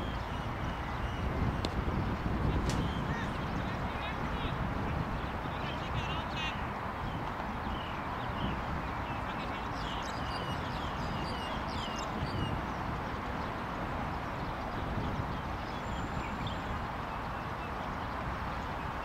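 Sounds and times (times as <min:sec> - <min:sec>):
outdoor background noise: 0:00.0 - 0:19.0
small birds chirping: 0:00.0 - 0:19.0.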